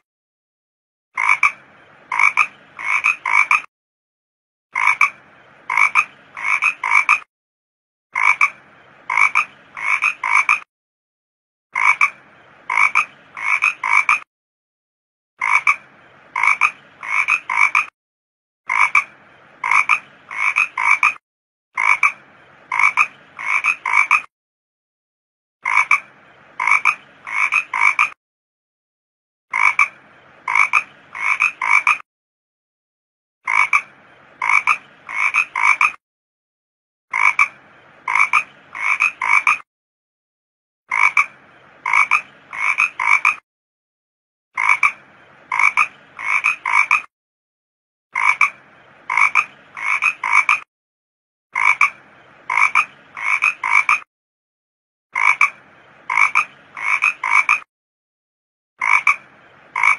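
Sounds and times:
toad croaking: 1.2s - 3.7s, 4.8s - 7.3s, 8.2s - 10.7s, 11.8s - 14.3s, 15.4s - 17.9s, 18.7s - 21.2s, 21.8s - 24.3s, 25.6s - 28.2s, 29.5s - 32.0s, 33.5s - 36.0s, 37.1s - 39.6s, 40.9s - 43.4s, 44.6s - 47.1s, 48.2s - 50.7s, 51.6s - 54.1s, 55.2s - 57.7s, 58.8s - 59.9s.

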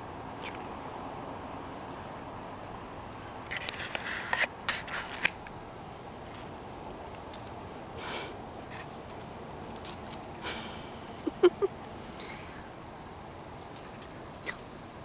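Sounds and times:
cicada buzzing and fluttering: 3.4s - 15.0s
clicks and scrapes: 3.5s - 5.5s.

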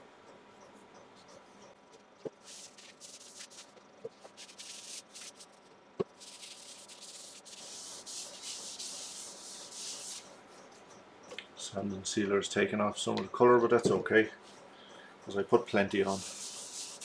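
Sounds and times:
paper towel rubbing wood: 2.3s - 5.5s, 6.2s - 10.3s, 16.0s - 17.0s.

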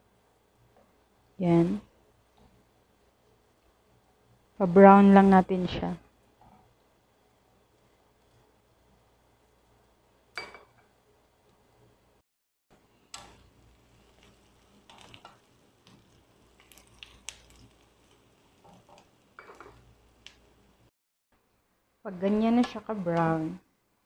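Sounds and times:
onions sizzling: 13.1s - 20.9s.

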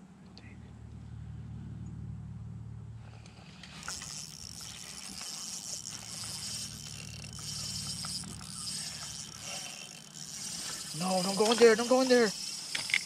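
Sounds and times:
fishing reel whirring: 3.1s - 13.0s
reel ticking: 3.6s - 13.0s.

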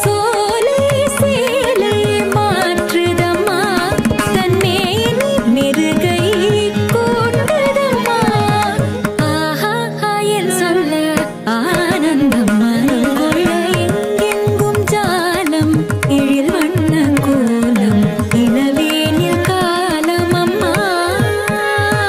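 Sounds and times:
hand drum rhythm: 0.0s - 9.5s, 11.2s - 22.0s
person singing ornamented melody: 0.0s - 22.0s.

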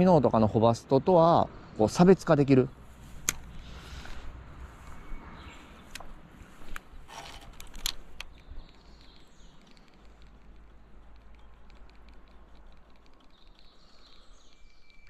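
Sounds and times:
sharp click: 3.2s - 3.5s
rustling handling noise: 5.8s - 8.9s.

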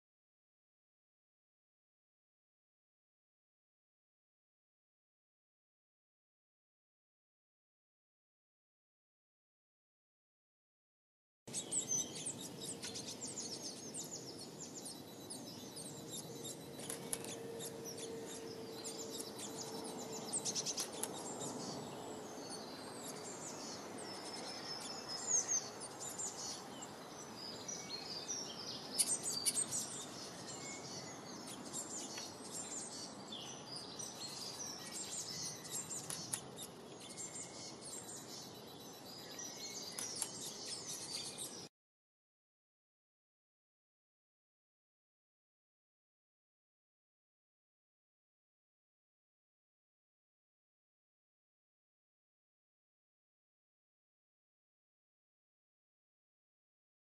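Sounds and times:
songbirds chirping: 11.5s - 41.7s.

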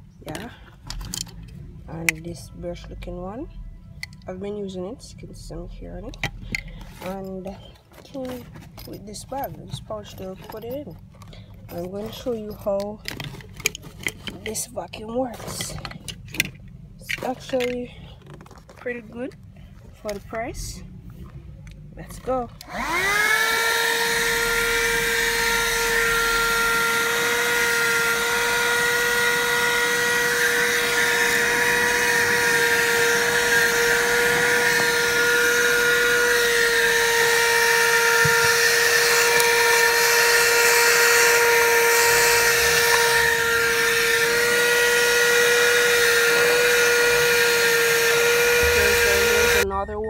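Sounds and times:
handheld vacuum cleaner whining: 6.2s - 14.6s, 15.3s - 16.1s, 22.2s - 49.6s.

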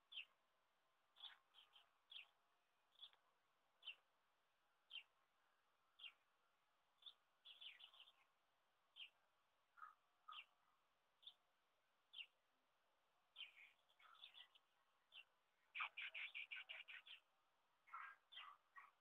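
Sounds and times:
faint small bird chirps: 0.0s - 0.4s, 1.1s - 3.2s, 3.8s - 4.1s, 4.9s - 5.2s, 6.0s - 6.2s, 7.0s - 8.3s, 9.0s - 9.2s, 9.8s - 10.6s, 11.2s - 11.5s, 12.1s - 12.4s, 13.3s - 19.0s.

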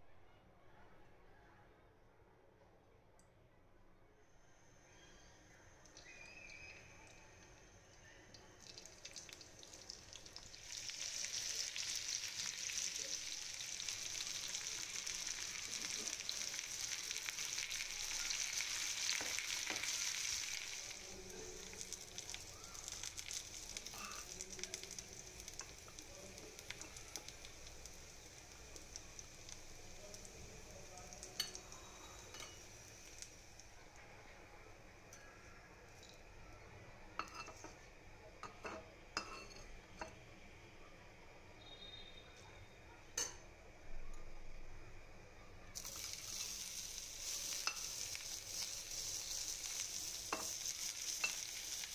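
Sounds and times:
vegetables sizzling in hot oil: 8.6s - 33.8s, 45.8s - 51.9s
spoon stirring in pan: 21.6s - 33.3s, 37.2s - 40.2s, 45.8s - 51.9s.

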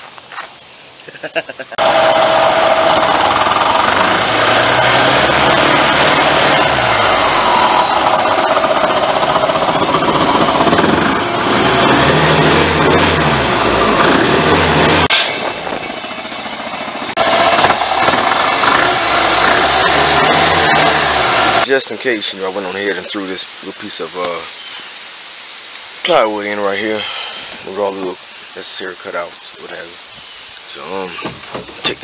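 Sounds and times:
small gasoline engine revving: 1.8s - 21.7s.

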